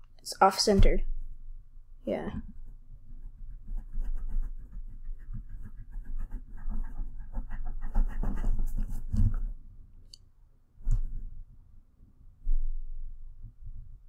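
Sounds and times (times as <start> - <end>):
drawing tool scratching on paper: 2.5 - 9.5.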